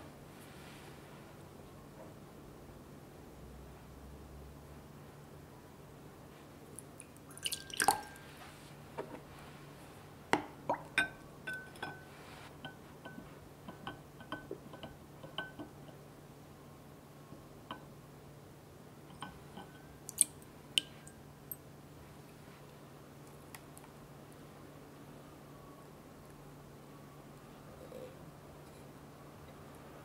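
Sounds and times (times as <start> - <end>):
glass clinks: 11.0 - 12.1.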